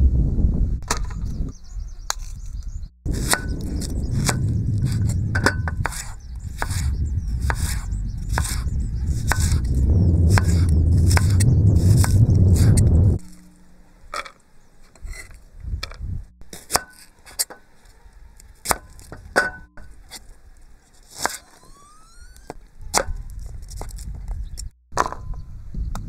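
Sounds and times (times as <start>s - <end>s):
knife chopping on wooden board: 9.3s - 9.6s.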